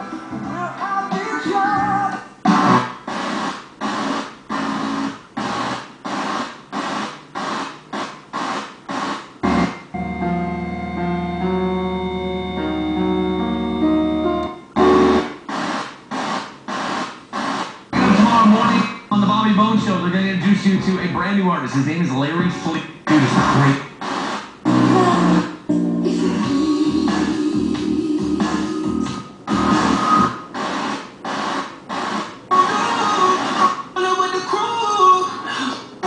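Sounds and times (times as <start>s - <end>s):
keyboard music on radio: 0.0s - 35.4s
radio static: 2.5s - 9.9s, 14.8s - 25.5s.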